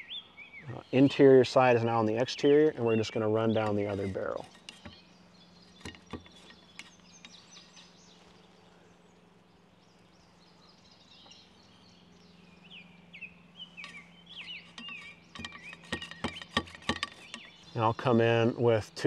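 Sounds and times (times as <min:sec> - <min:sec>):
low steady hum: 0:00.0 - 0:19.0
small birds chirping: 0:00.0 - 0:19.0
cleaning rod knocking in barrel: 0:05.8 - 0:06.9, 0:14.7 - 0:17.5.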